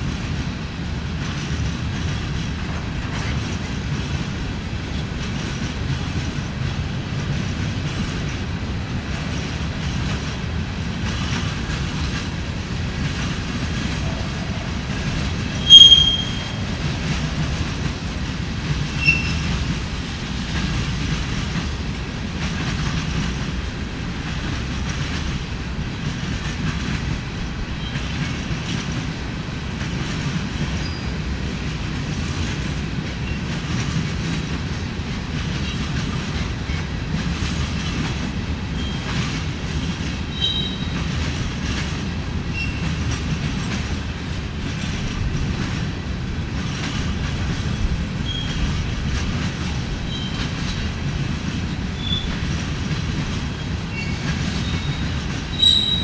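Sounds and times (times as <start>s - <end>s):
clickety-clack over rail joints: 0.0s - 56.0s
train wheels rumbling on rail: 0.0s - 56.0s
high-pitched wheel squeals: 15.6s - 16.6s, 19.0s - 19.4s, 40.3s - 41.0s, 54.0s - 56.0s.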